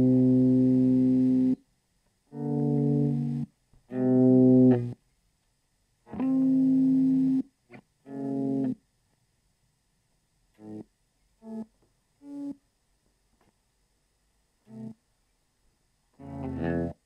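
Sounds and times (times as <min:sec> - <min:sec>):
sustained guitar chords: 0:02.3 - 0:05.0, 0:16.2 - 0:17.0.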